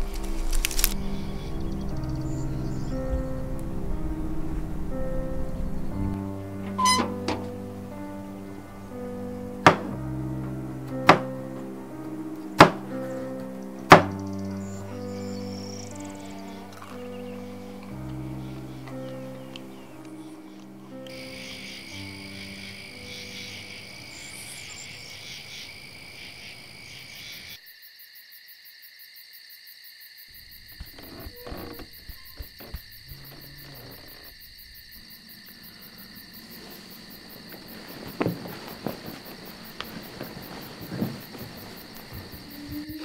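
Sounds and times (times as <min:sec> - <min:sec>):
frogs and insects chirring: 0:00.0 - 0:12.4, 0:13.0 - 0:43.0
low music: 0:00.0 - 0:25.4, 0:37.8 - 0:43.0
sharp knocks: 0:09.6 - 0:10.0, 0:11.0 - 0:11.3, 0:12.6 - 0:12.9
soft rustling: 0:35.5 - 0:43.0.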